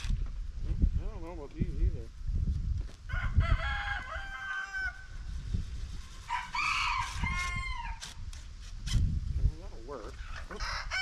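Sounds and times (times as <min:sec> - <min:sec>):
rooster crowing: 0:03.1 - 0:05.1, 0:06.3 - 0:08.0, 0:10.5 - 0:11.0.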